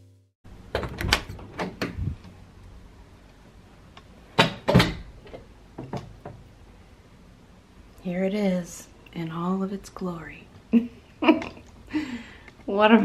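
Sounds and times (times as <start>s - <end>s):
knocks and clunks: 0.7s - 2.2s, 4.4s - 6.5s.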